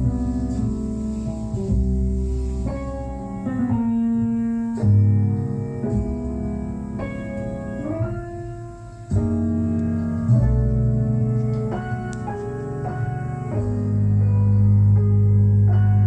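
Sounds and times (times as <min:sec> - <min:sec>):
deep bass line: 0:00.0 - 0:16.0
instrumental music over loudspeakers: 0:00.0 - 0:16.0.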